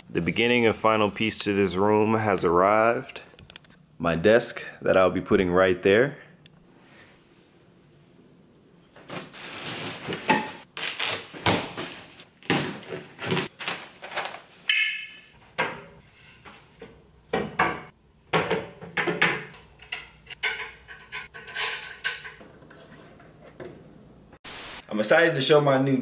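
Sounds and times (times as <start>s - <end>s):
knocks and scrapes of furniture parts: 15.4s - 23.9s.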